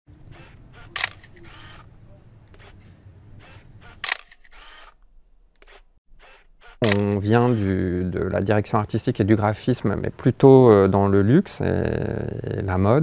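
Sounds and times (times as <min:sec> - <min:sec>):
sharp clicks: 0:00.1 - 0:01.8, 0:03.4 - 0:07.6.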